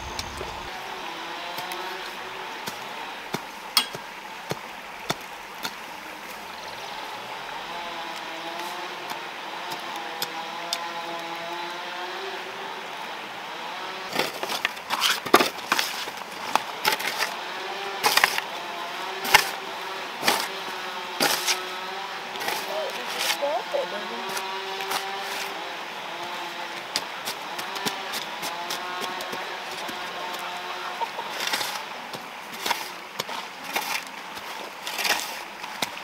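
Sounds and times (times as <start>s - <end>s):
faint engine hum: 0.0s - 3.4s, 17.3s - 32.0s
background hiss: 0.0s - 9.3s
hand tool tapping ground: 2.7s - 5.8s
hoe chopping soil: 14.1s - 18.6s, 19.2s - 19.6s, 20.2s - 23.5s, 24.2s - 36.0s.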